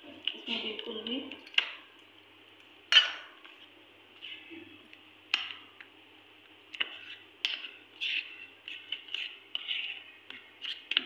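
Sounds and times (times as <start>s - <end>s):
spoon scraping steel bowl: 6.8s - 11.0s.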